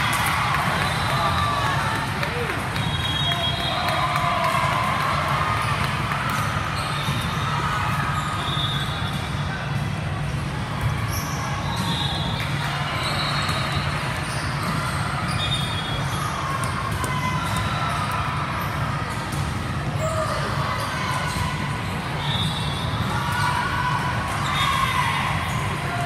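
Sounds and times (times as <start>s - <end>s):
shoe squeaks: 6.8s - 9.2s, 11.1s - 16.3s, 22.2s - 23.4s
volleyballs hit and bouncing: 16.0s - 22.1s.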